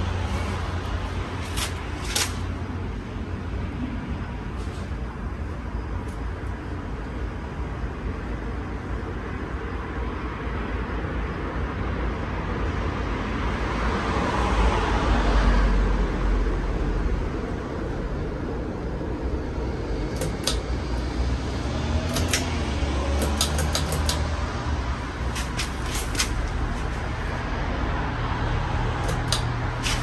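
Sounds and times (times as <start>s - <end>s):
ceiling fan air rush: 0.0s - 14.9s, 15.6s - 30.0s
pull-chain switch clicking: 20.1s - 20.6s, 22.1s - 22.5s, 23.2s - 24.3s, 29.0s - 30.0s.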